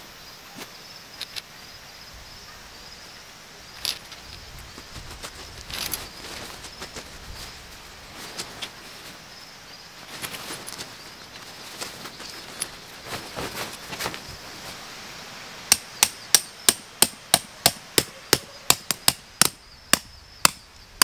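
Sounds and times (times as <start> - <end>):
insect chirping: 0.0 - 21.0
tent fabric and fittings handled: 3.8 - 9.3, 10.0 - 14.8
footsteps crunching on gravel: 10.0 - 14.8.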